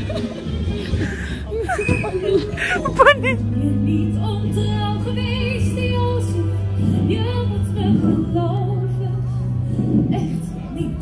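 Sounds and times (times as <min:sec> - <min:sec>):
sustained backing music: 0:00.0 - 0:11.0
woman singing with vibrato: 0:02.9 - 0:11.0.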